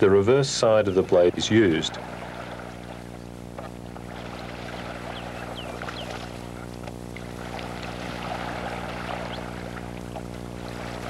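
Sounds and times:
electrical hum: 0.0s - 11.0s
paddle in water: 0.0s - 11.0s
bird chirps: 5.1s - 6.2s.

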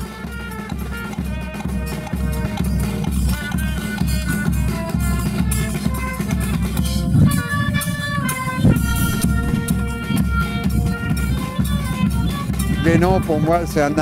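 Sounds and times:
low drum beat: 0.0s - 11.2s
live band music: 0.0s - 14.0s
washboard scraping and cymbal: 7.0s - 10.4s.

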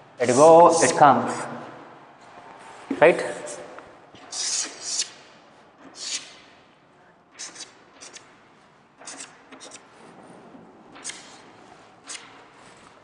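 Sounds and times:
chalk scratching on chalkboard: 4.3s - 5.2s, 5.9s - 6.4s, 7.4s - 8.2s, 9.0s - 9.9s.

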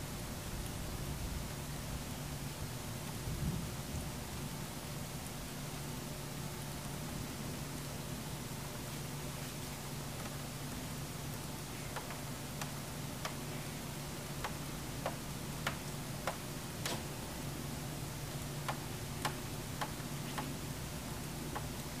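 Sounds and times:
steady low hum: 0.0s - 22.0s
regular clicking tick: 11.3s - 13.4s, 14.4s - 17.0s, 18.6s - 20.6s, 21.5s - 22.0s.

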